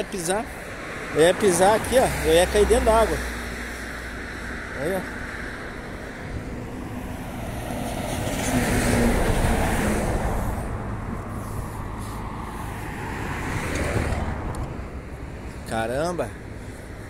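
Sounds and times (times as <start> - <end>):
car tyres hissing on wet road: 8.7 - 13.5.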